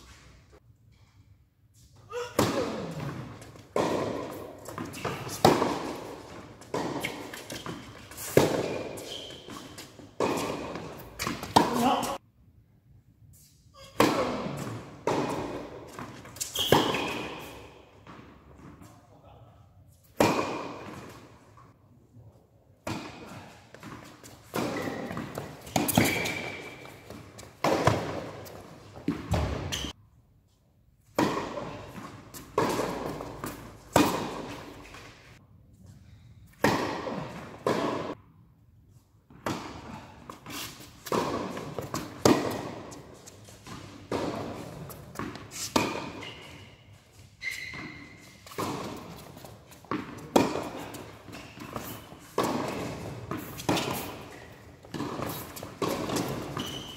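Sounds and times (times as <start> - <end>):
tennis ball bouncing on hard court: 2.4 - 12.2, 14.0 - 18.8, 20.2 - 21.2, 22.8 - 30.0, 31.1 - 35.1, 36.5 - 38.2, 41.0 - 46.6, 47.4 - 56.9
tennis ball struck by rackets: 3.7 - 9.6, 10.2 - 12.2, 23.8 - 29.9, 31.1 - 34.9, 36.6 - 38.2, 41.0 - 46.3, 48.4 - 56.9.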